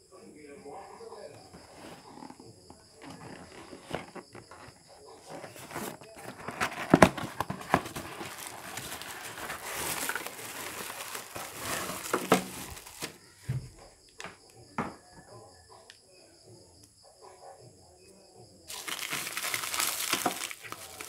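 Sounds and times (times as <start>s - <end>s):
cardboard being handled: 1.4s - 13.6s, 18.7s - 21.0s
plastic wrap crinkling: 3.0s - 13.2s, 18.7s - 21.0s.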